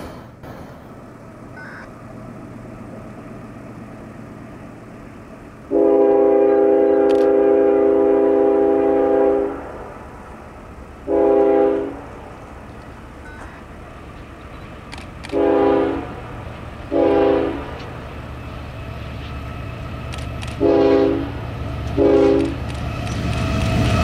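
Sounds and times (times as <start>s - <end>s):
locomotive air horn: 5.7s - 9.8s, 11.0s - 12.2s, 15.2s - 16.3s, 16.9s - 18.0s, 20.6s - 21.4s, 22.0s - 22.6s.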